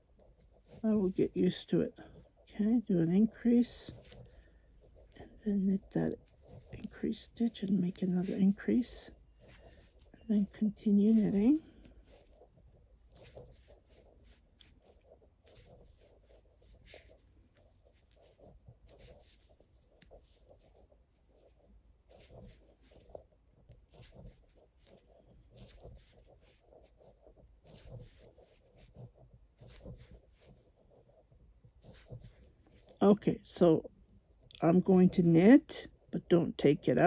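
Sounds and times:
knitting needles clicking: 0:22.1 - 0:30.5.

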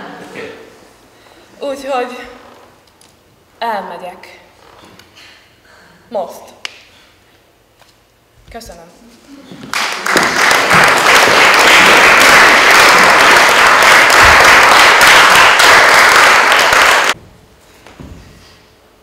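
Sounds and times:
audience applauding: 0:09.6 - 0:17.2.

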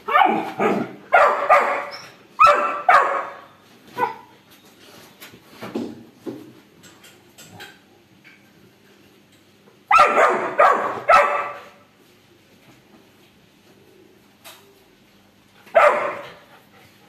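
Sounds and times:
puppy barking: 0:00.0 - 0:04.3, 0:09.9 - 0:11.8, 0:15.7 - 0:16.4.

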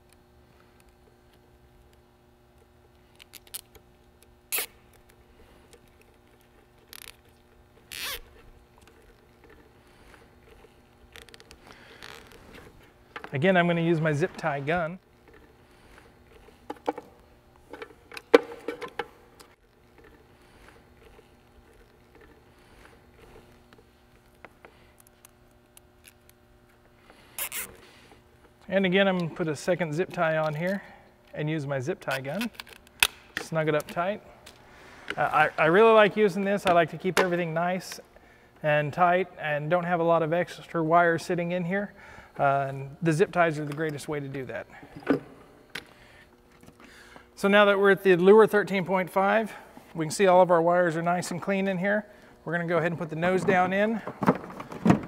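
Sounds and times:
zip tie clicking: 0:03.1 - 0:12.4, 0:27.3 - 0:27.8
zip ties zipping tight: 0:04.5 - 0:04.9, 0:07.9 - 0:08.4, 0:27.3 - 0:27.8
cable rustling: 0:04.5 - 0:26.4.

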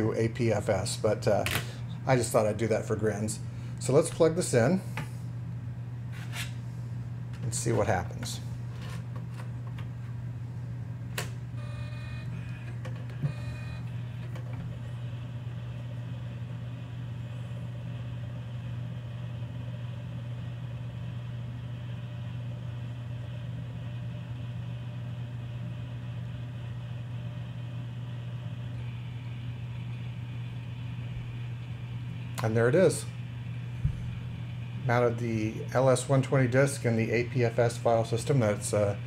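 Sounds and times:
disk drive whirring: 0:11.1 - 0:39.0
disk drive buzzing chatter: 0:11.2 - 0:19.2
faint whine: 0:25.2 - 0:39.0.

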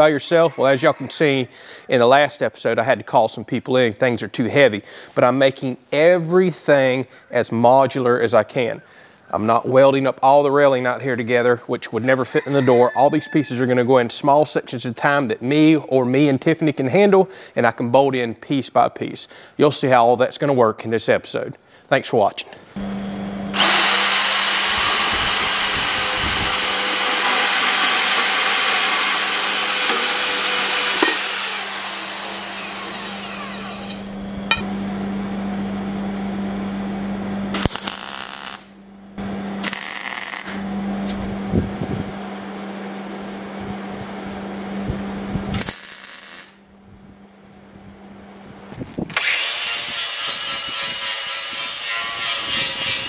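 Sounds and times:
angle grinder grinding metal: 0:23.5 - 0:34.7, 0:37.5 - 0:38.7, 0:39.6 - 0:40.7, 0:45.6 - 0:46.6, 0:49.1 - 0:53.0
band saw cutting steel tubing: 0:23.5 - 0:34.7, 0:37.5 - 0:38.7, 0:39.6 - 0:40.6, 0:45.6 - 0:46.6, 0:49.2 - 0:53.0
welding bursts: 0:37.5 - 0:38.7, 0:39.6 - 0:40.6, 0:45.5 - 0:46.6.

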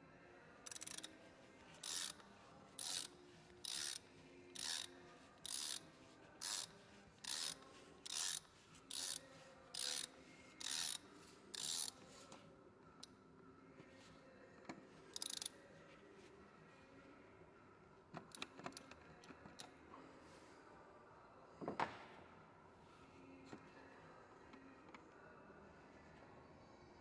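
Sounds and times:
ratchet wrench clicking: 0:00.7 - 0:01.1, 0:01.8 - 0:02.2, 0:02.8 - 0:05.8, 0:06.4 - 0:11.0, 0:11.6 - 0:12.0, 0:15.1 - 0:15.5.

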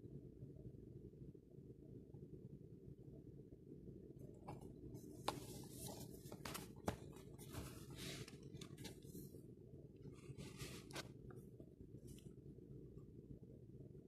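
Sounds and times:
fingers rustling on cardboard: 0:10.1 - 0:11.1.

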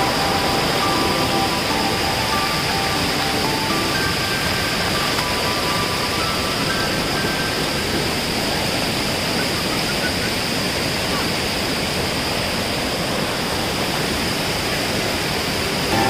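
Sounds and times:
stream water rushing over rocks: 0:00.0 - 0:16.0.

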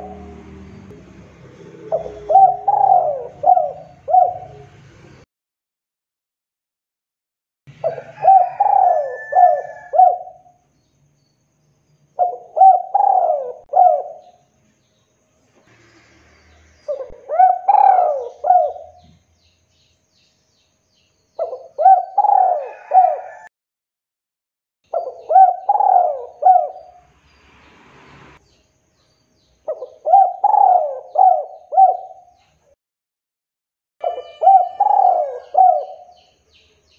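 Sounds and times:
dove cooing: 0:00.0 - 0:00.4, 0:01.7 - 0:04.8, 0:07.8 - 0:10.5, 0:12.2 - 0:14.4, 0:16.8 - 0:19.1, 0:21.4 - 0:23.5, 0:24.9 - 0:27.0, 0:29.7 - 0:32.4, 0:34.0 - 0:36.2.

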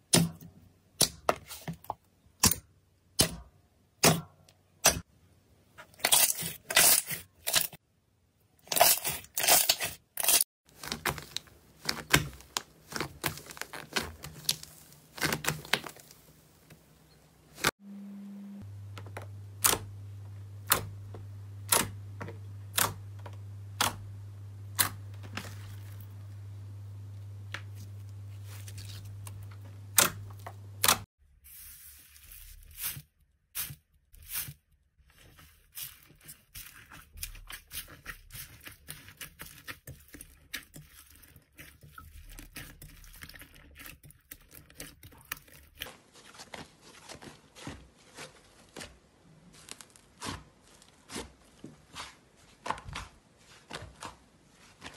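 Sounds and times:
foam bead slime crunching: 0:08.7 - 0:16.8, 0:24.7 - 0:26.5, 0:27.1 - 0:52.1
low hum: 0:17.8 - 0:31.0.

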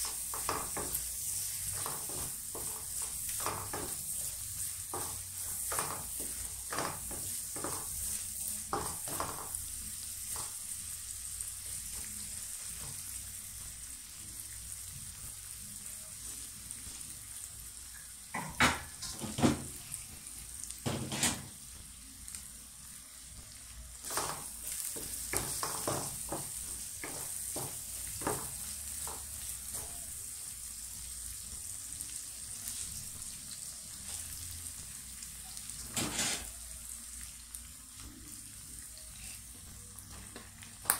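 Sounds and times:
wooden spatula knocking pan: 0:00.0 - 0:01.1, 0:01.7 - 0:04.1, 0:04.9 - 0:08.0, 0:08.7 - 0:09.6, 0:24.1 - 0:30.0
onions sizzling in a wok: 0:00.0 - 0:40.9.

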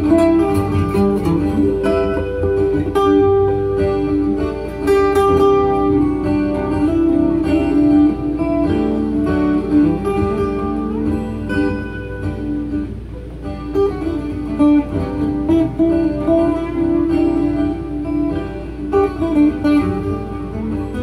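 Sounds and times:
acoustic guitar loop jam: 0:00.0 - 0:21.0.

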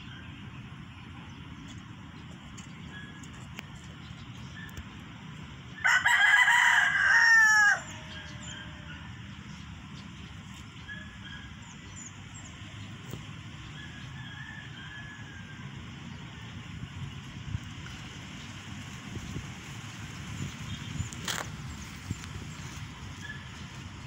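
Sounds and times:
rooster crowing: 0:05.8 - 0:09.2, 0:13.8 - 0:15.8.

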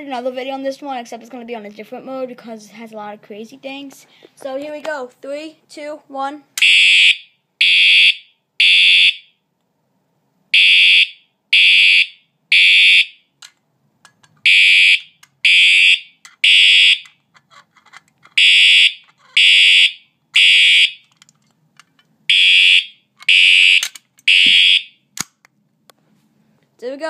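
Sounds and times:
fire alarm horn blasts: 0:06.6 - 0:09.4, 0:10.6 - 0:13.3, 0:14.5 - 0:17.1, 0:18.4 - 0:21.0, 0:22.3 - 0:25.0.

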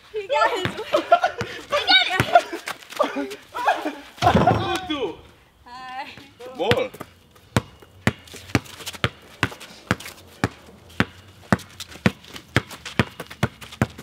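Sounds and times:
basketball bouncing: 0:00.5 - 0:02.5, 0:06.7 - 0:14.0.

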